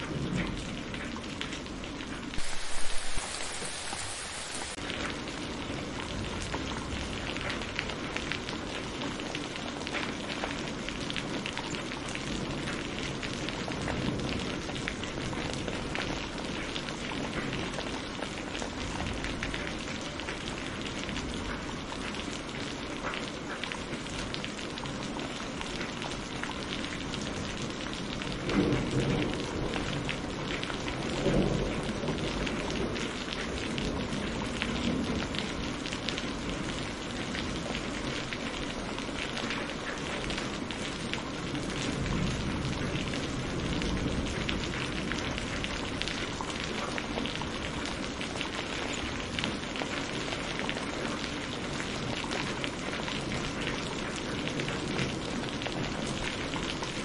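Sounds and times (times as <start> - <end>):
low rumble of thunder: 0.0 - 1.4, 12.2 - 19.7, 27.3 - 38.2, 41.5 - 47.0
rain falling on foliage: 0.0 - 57.0.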